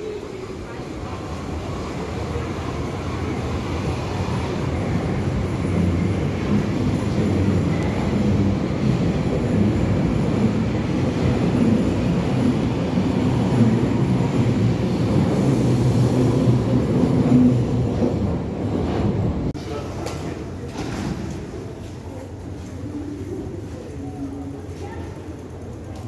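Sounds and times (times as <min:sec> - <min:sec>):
train rumbling on rails: 0:00.0 - 0:26.0.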